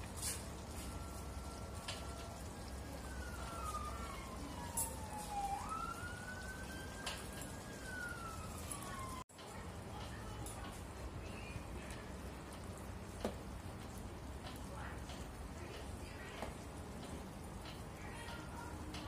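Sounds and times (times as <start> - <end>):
emergency siren wailing: 0.3 - 9.3.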